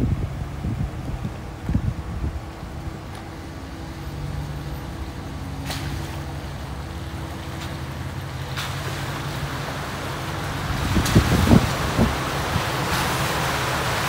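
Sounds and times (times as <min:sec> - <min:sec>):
truck engine running low: 0:00.0 - 0:14.0
tyres hissing through water: 0:02.5 - 0:14.0.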